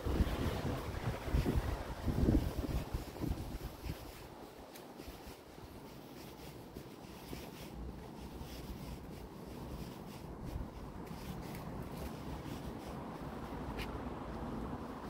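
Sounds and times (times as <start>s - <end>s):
wind rumble on microphone: 0.0s - 15.0s
footsteps and handling rustles: 0.1s - 15.0s.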